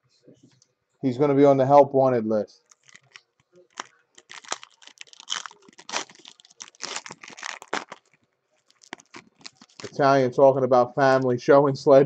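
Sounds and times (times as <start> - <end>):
wrapper crinkling and tearing: 2.6 - 10.0.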